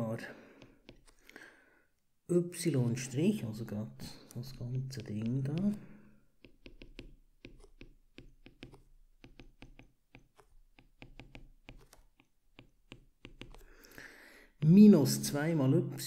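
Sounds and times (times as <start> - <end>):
stylus tapping on glass screen: 4.6 - 13.6.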